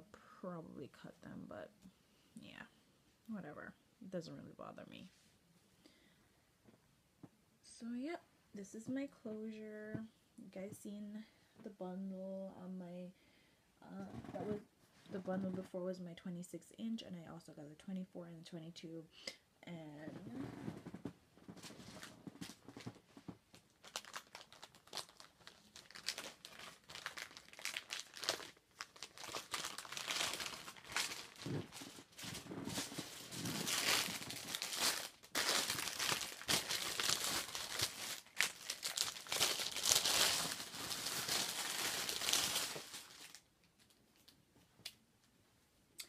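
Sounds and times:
plastic packaging crinkling: 21.5s - 44.4s.

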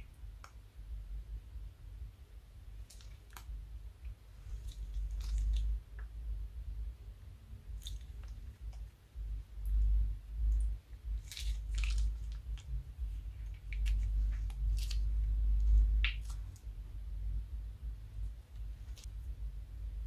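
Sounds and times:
low rumble: 0.0s - 20.0s
slime squelching and crackling: 2.8s - 3.6s, 4.4s - 6.1s, 7.7s - 8.9s, 9.5s - 16.7s.

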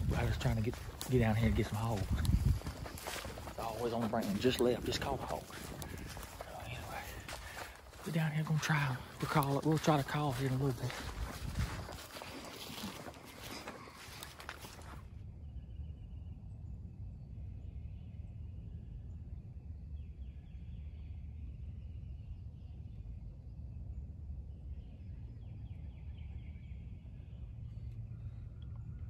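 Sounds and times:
dry leaves crunching underfoot: 0.0s - 15.0s
steady low rumble: 0.0s - 29.0s.

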